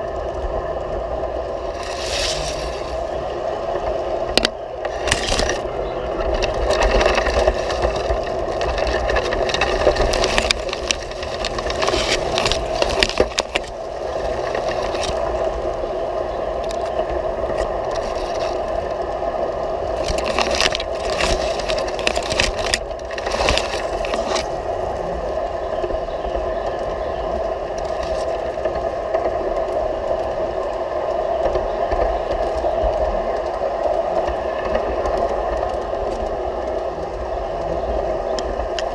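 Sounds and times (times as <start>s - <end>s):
wheels rumbling on rails: 0.0s - 38.9s
clicks and rattles: 4.3s - 15.3s, 19.9s - 24.6s.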